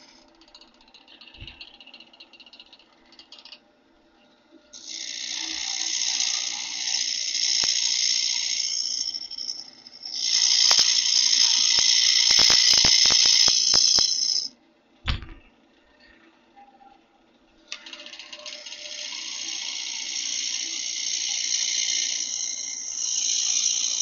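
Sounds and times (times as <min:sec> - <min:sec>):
gouge scraping spinning wood: 0:04.8 - 0:14.5, 0:18.1 - 0:24.0
lathe humming: 0:04.8 - 0:14.5, 0:17.7 - 0:24.0
sharp ticks: 0:06.7 - 0:14.5
thump: 0:15.1 - 0:15.4.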